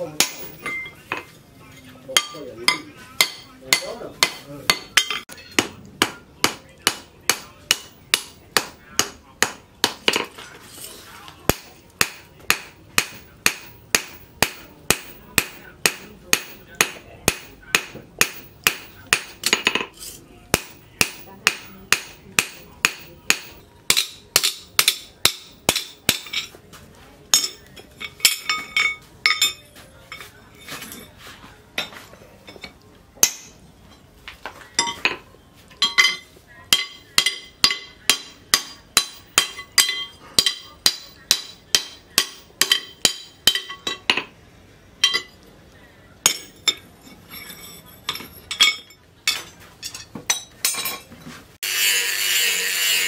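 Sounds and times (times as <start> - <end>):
hammer striking metal on anvil: 0.0 - 1.3, 2.1 - 10.4, 11.5 - 19.9, 20.5 - 26.6, 27.3 - 29.7, 31.8 - 33.6, 35.8 - 44.3, 45.0 - 45.4, 46.2 - 46.8.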